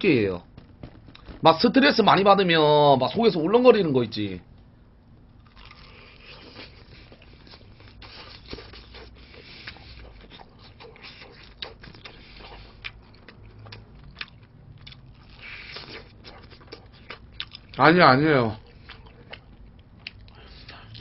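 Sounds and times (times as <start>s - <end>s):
chewing crispy fried chicken: 5.4s - 21.0s.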